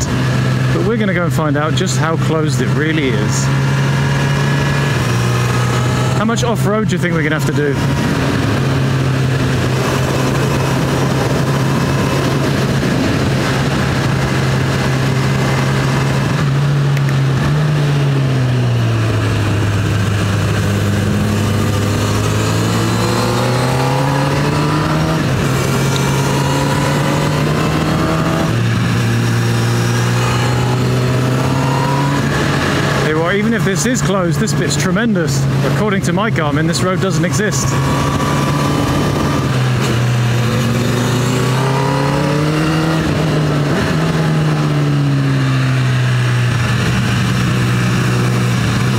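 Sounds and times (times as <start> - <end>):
motorcycle engine running: 0.0 - 48.9
wind rush on microphone: 7.7 - 33.2, 37.7 - 48.9.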